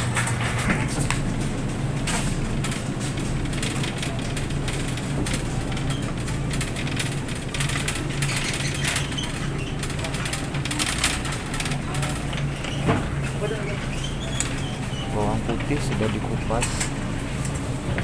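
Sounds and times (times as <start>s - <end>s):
shopping cart rattling on tiles: 0.0s - 17.6s
steady low hum: 0.0s - 18.0s.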